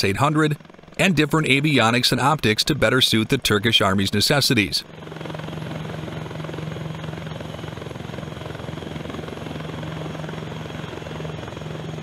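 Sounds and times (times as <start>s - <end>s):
helicopter running: 0.0s - 12.0s.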